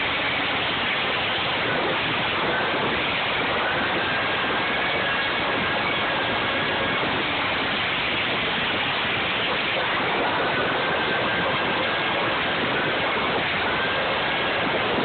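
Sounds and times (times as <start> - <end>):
high engine whine: 0.0 - 15.0
wind tyre and vibration noise: 0.0 - 15.0.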